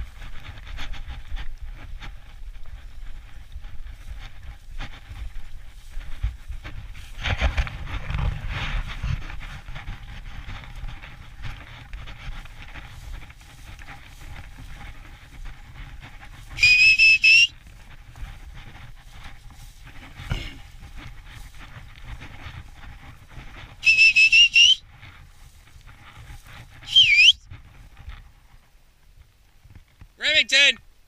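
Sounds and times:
footsteps through dry grass: 0.0 - 30.2
dog-training whistle blast: 16.6 - 17.5, 23.8 - 24.8, 26.9 - 27.4.

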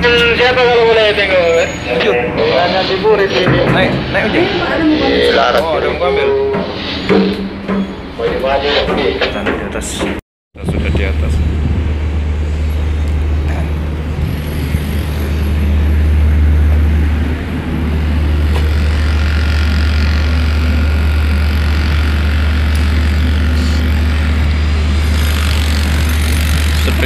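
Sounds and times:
wind buffeting microphone: 10.6 - 22.4.

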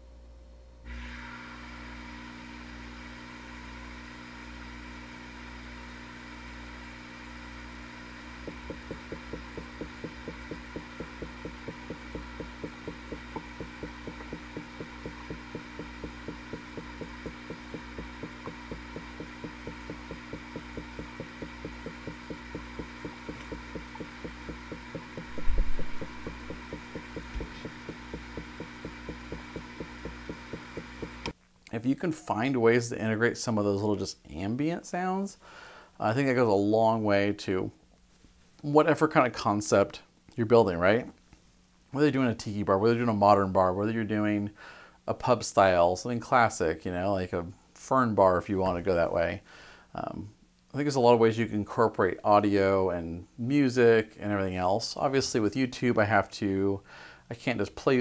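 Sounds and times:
steady hum: 0.0 - 31.4
air bubbling through water: 23.1 - 29.7
thump: 25.2 - 26.1.

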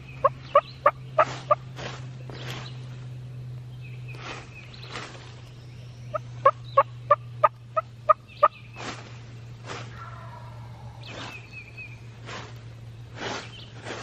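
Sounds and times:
turkey yelping: 9.9 - 10.7.

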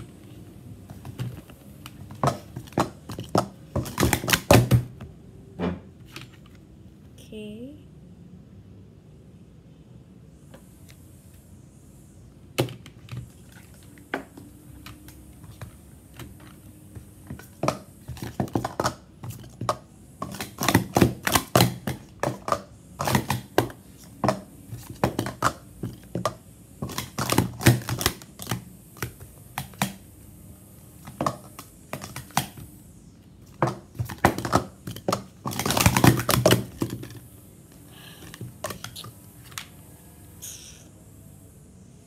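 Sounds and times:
plastic cups clattering: 0.9 - 4.9, 17.3 - 30.0, 33.5 - 37.2.

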